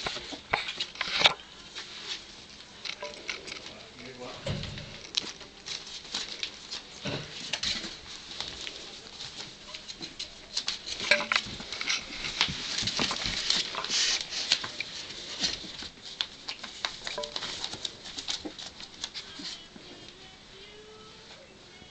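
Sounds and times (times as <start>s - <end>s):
puppy paws scrabbling on bedding: 5.0s - 19.7s.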